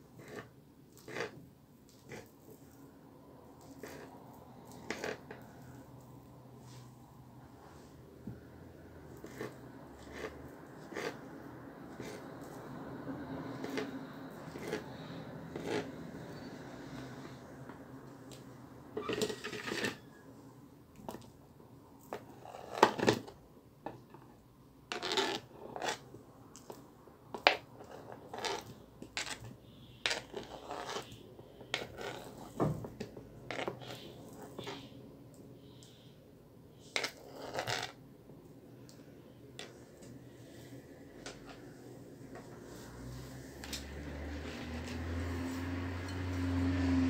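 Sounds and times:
knife scraping on cutting board: 0.2s - 1.4s, 3.6s - 4.1s, 4.7s - 5.7s, 9.2s - 11.3s, 11.9s - 12.2s, 13.5s - 16.5s, 27.5s - 32.6s.

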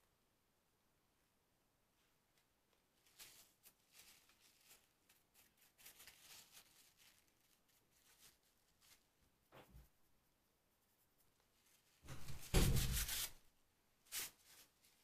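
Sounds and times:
paintbrush scratching and rustling: 2.7s - 13.4s, 14.0s - 15.0s.

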